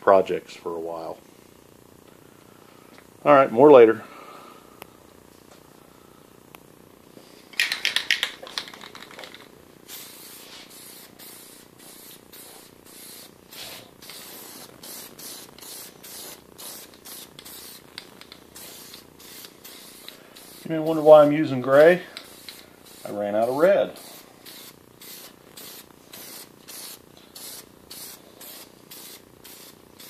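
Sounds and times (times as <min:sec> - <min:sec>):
spray can rattling: 0:07.6 - 0:13.2, 0:14.0 - 0:20.7, 0:22.2 - 0:23.2
spray paint can hissing: 0:07.6 - 0:21.3, 0:22.2 - 0:30.0.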